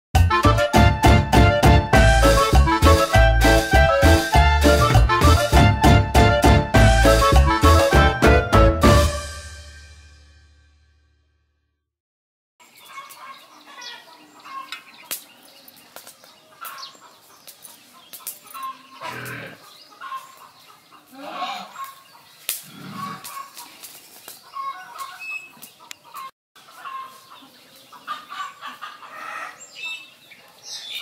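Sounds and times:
chickens clucking: 0:12.7 - 0:30.6.

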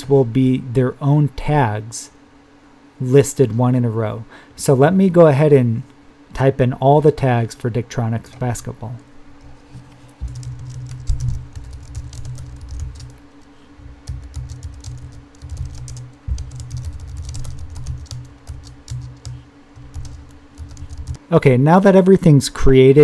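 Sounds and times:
low hum: 0:07.9 - 0:21.5.

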